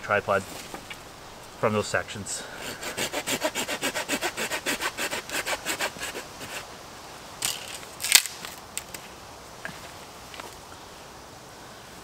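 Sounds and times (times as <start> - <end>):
hand saw cutting stick: 2.6 - 6.7
stick cracking sharply: 8.0 - 8.6.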